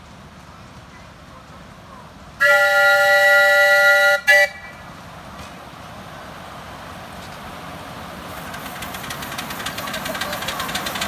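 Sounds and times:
steam locomotive running: 0.0 - 11.0
steam locomotive whistle: 2.4 - 4.8.

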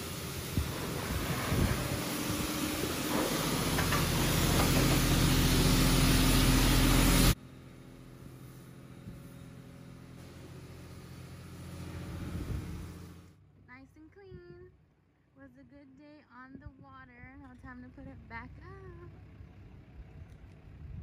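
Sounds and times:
water spray hissing: 0.0 - 7.4
vehicle engine running: 0.0 - 14.2, 17.2 - 21.0.

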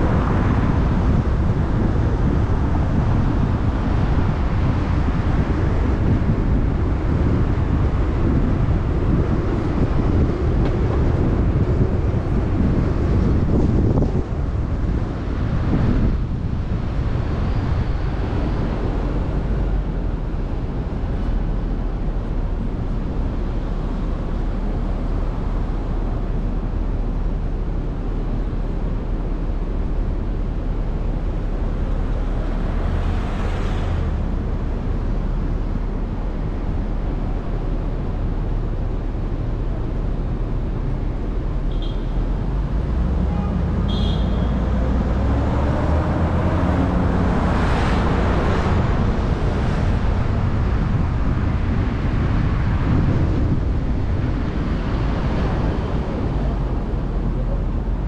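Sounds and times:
city traffic rumble: 0.0 - 58.0.

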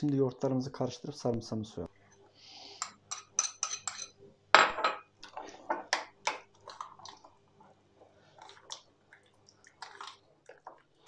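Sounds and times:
metal spoon clinking on bowls: 2.8 - 5.1.

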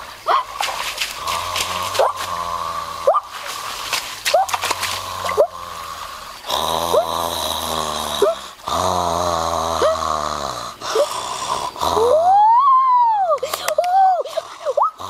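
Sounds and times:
person snoring: 5.0 - 12.3.

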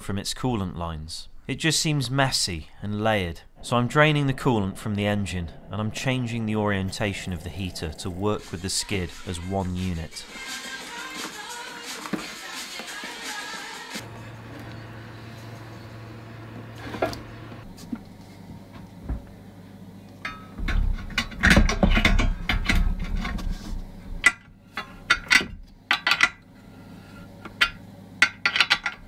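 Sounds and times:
steady low hum: 0.0 - 10.4.

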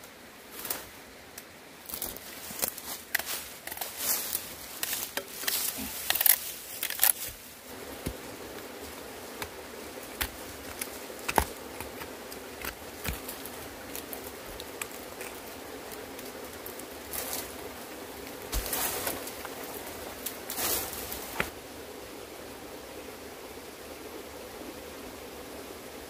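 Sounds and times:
hoe digging into stony soil: 4.8 - 7.4.

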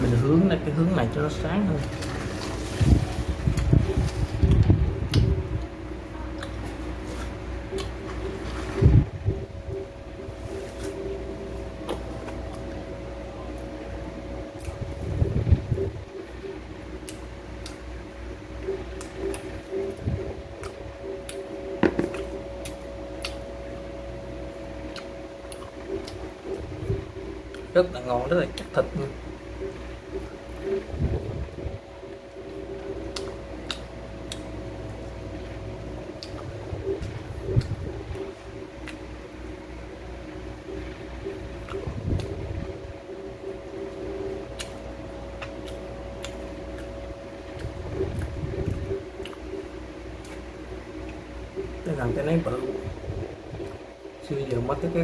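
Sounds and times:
faint steady hum: 0.0 - 55.0
wet chewing sounds: 6.3 - 8.4, 18.6 - 23.6, 24.8 - 27.8, 32.4 - 34.6, 36.1 - 39.3, 40.7 - 42.5, 43.9 - 51.8.

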